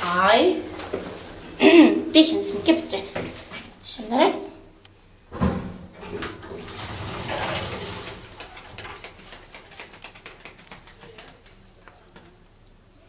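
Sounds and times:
elevator rushing noise: 6.0 - 9.0
light clicks and ticks: 8.4 - 12.8.

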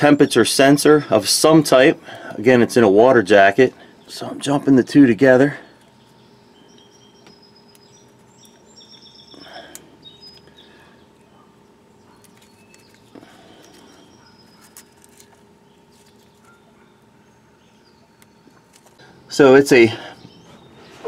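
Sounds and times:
birds chirping: 0.0 - 21.0.

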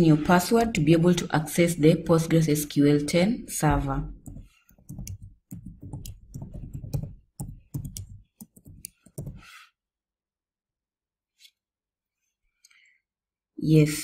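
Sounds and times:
keyboard key clicks: 4.3 - 9.4.

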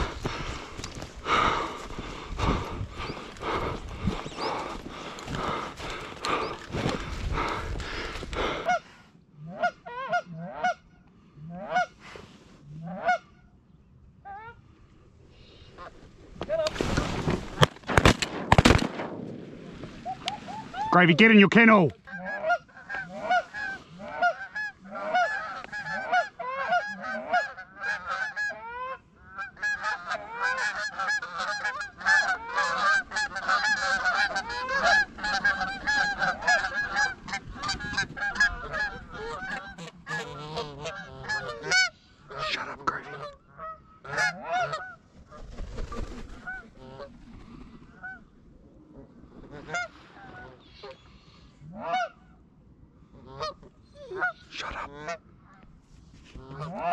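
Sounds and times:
geese honking: 2.4 - 12.0, 20.0 - 45.1, 46.4 - 47.2, 47.9 - 48.3, 49.0 - 52.3, 53.2 - 55.7, 56.4 - 56.9.

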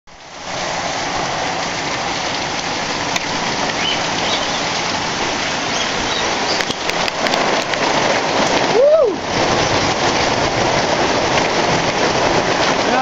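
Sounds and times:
heavy rain pouring: 0.1 - 13.0
sharp ticks of raindrops: 0.1 - 13.0.

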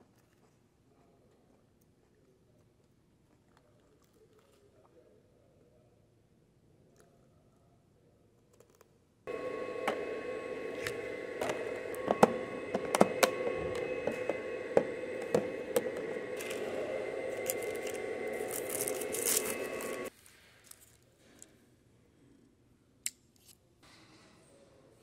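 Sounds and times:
steady hum with held tones: 9.3 - 20.1.

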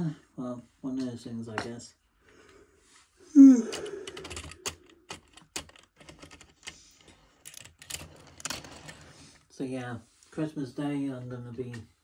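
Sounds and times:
low vocal hum: 3.3 - 4.6.

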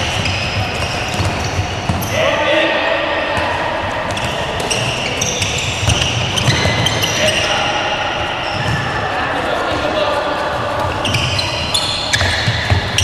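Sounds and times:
ball bouncing on court: 0.0 - 2.2, 3.3 - 7.5, 8.4 - 9.0, 10.8 - 13.0
shoe squeaks on floor: 0.0 - 2.3, 4.1 - 9.0, 10.8 - 13.0.

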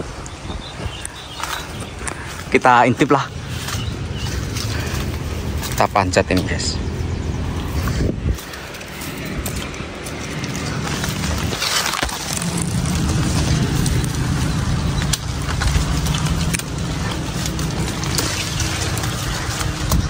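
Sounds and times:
leaves and branches rustling: 0.0 - 20.0
scattered clicks: 7.4 - 20.0.

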